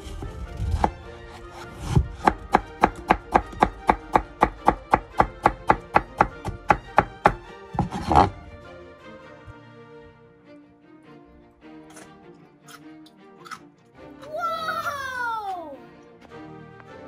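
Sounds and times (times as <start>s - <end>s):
knife chopping on cutting board: 0.2s - 8.3s.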